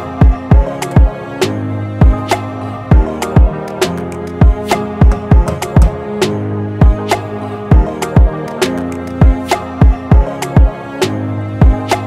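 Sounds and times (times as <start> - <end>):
held chords: 2.0 - 10.7.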